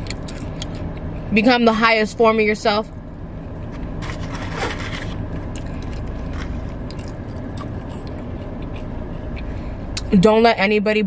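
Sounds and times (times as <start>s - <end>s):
low rumble inside car: 0.0s - 11.0s
paper packaging rustling: 4.0s - 6.8s.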